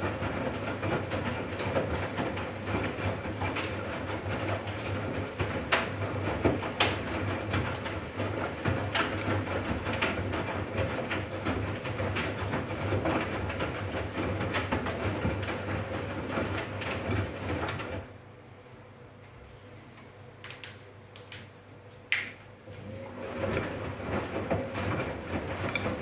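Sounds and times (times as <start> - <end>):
washing machine motor hum: 0.0 - 26.0
laundry swishing and sloshing: 22.4 - 26.0.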